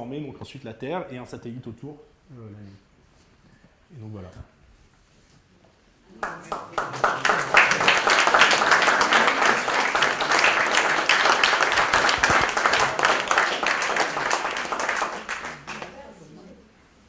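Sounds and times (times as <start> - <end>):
audience applauding: 6.2 - 16.0.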